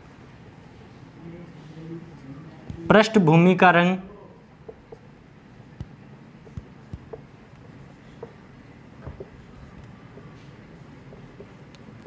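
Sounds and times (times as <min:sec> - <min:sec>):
marker squeaking on whiteboard: 0:04.2 - 0:12.0.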